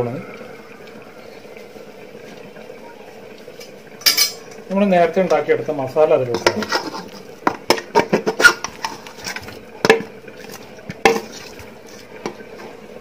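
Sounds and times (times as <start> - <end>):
spoon clinking on metal pot: 4.0 - 4.4.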